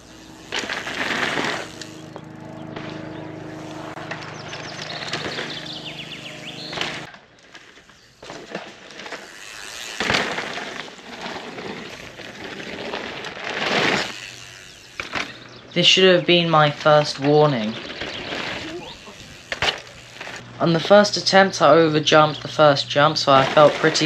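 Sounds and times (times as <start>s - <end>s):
steady hum: 0.0s - 17.7s
bike tyres crunching over gravel: 0.0s - 24.0s.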